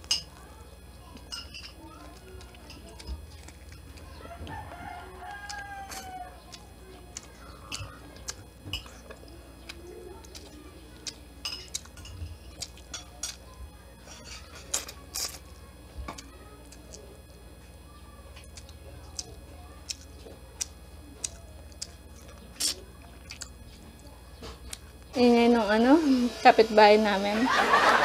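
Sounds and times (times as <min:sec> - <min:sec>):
rooster crowing: 0:04.0 - 0:06.5.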